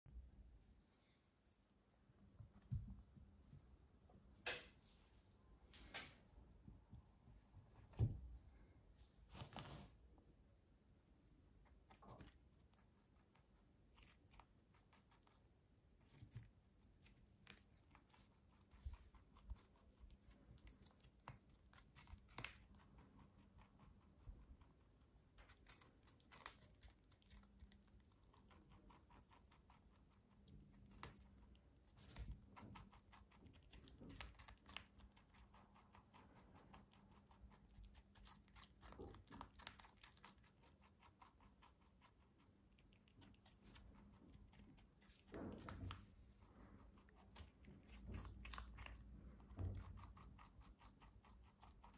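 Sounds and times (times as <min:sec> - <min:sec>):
rabbit chewing cucumber crunches: 0:11.3 - 0:51.9.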